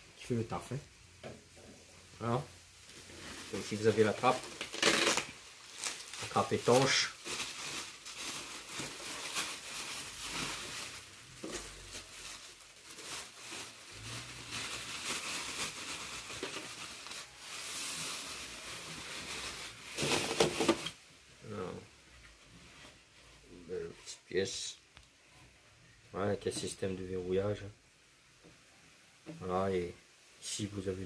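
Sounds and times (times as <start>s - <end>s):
bubble wrap crinkling: 1.9s - 21.0s.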